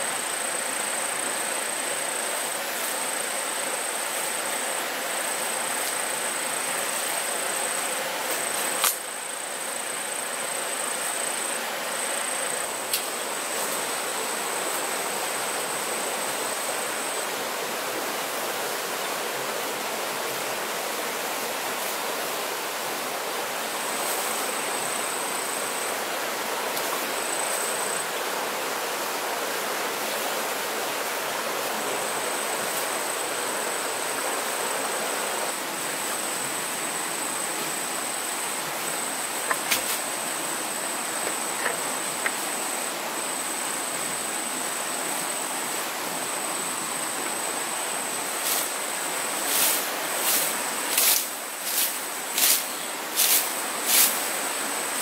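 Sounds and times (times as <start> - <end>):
stream running: 0.0 - 55.0
insect buzzing: 31.6 - 43.4, 49.4 - 54.4.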